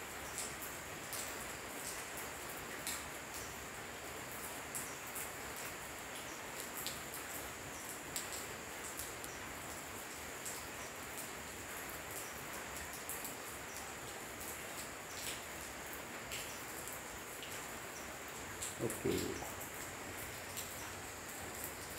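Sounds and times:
light ticks: 8.1s - 9.4s
night insects trilling: 17.9s - 21.9s.

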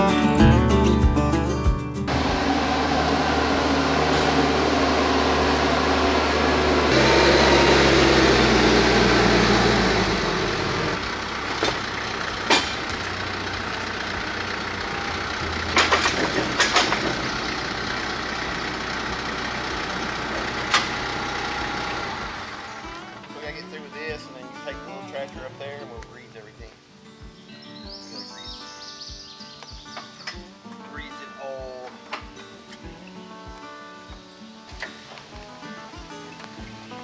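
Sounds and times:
tractor diesel engine idling: 2.1s - 23.6s
sharp knocks: 11.6s - 13.0s.

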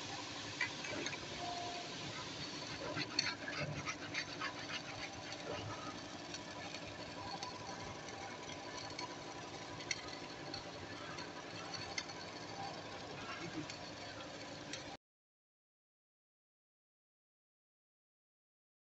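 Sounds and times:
faint workshop hum: 0.0s - 15.0s.

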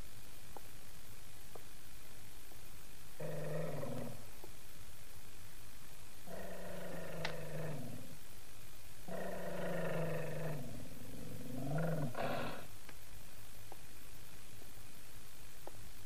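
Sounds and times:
small dog growling: 3.2s - 4.2s, 6.3s - 8.2s, 9.1s - 12.7s.

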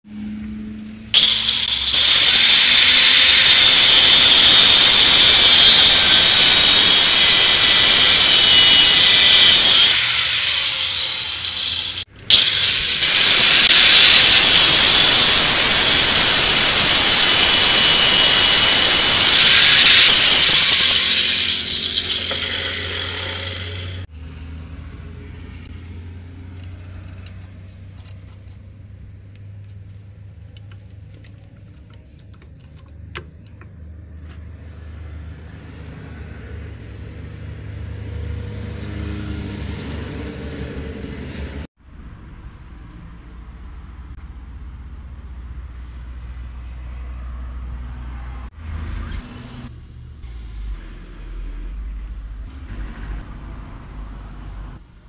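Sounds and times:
angle grinder cutting steel: 1.1s - 24.2s.

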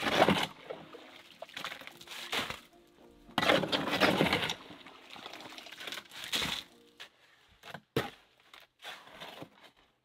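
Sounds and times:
shovel scraping gravelly soil: 1.9s - 2.8s, 3.4s - 4.8s, 5.8s - 7.4s, 8.0s - 9.8s.

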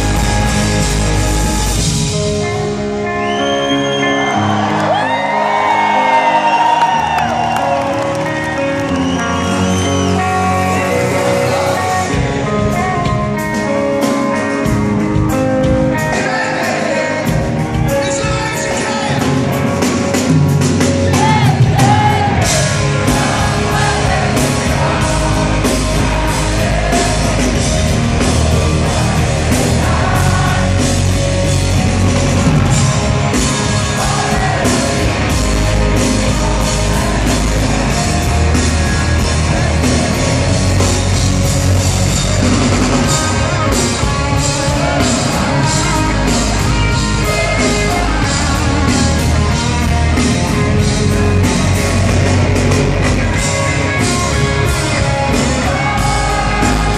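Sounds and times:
electric guitars: 0.0s - 56.9s
drum kit steady beat: 18.2s - 56.9s
person singing: 42.4s - 51.6s, 53.4s - 56.9s.

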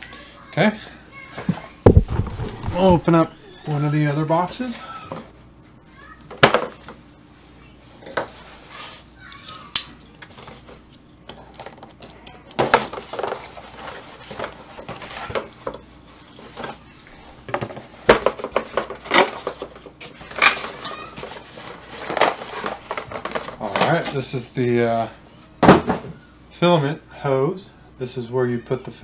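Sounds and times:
cardboard box rustling and scraping: 1.9s - 4.0s.

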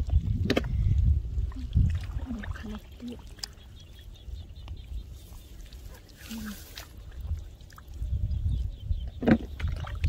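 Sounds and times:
feet splashing in muddy water: 5.1s - 7.9s.

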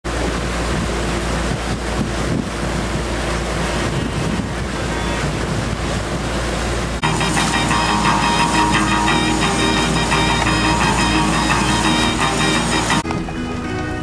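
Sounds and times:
water rushing: 0.1s - 14.0s
wind buffeting microphone: 0.2s - 7.0s.

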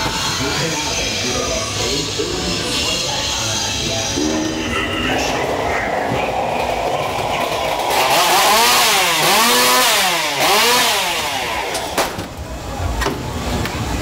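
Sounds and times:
ride car rumble: 0.0s - 14.0s
chainsaw engine revving: 6.8s - 12.2s.

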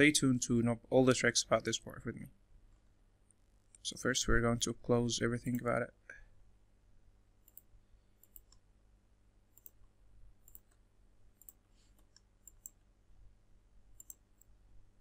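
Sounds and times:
computer mouse clicks: 7.4s - 8.7s, 9.5s - 10.8s, 11.4s - 12.8s, 14.0s - 14.6s.

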